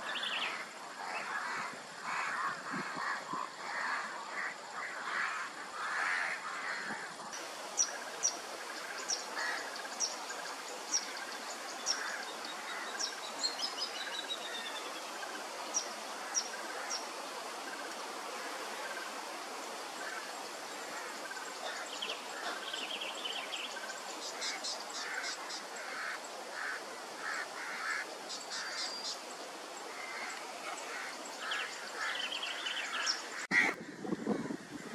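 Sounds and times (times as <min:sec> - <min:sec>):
steady background hiss: 0:00.0 - 0:33.8.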